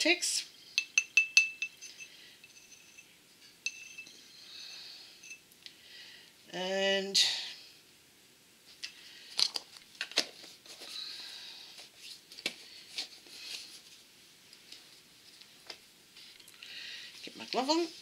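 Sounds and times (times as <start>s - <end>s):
soft rustling: 11.8s - 18.0s.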